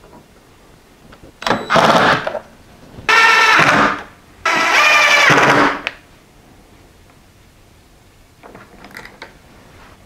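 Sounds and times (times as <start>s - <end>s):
cordless drill motor whining: 3.1s - 5.7s.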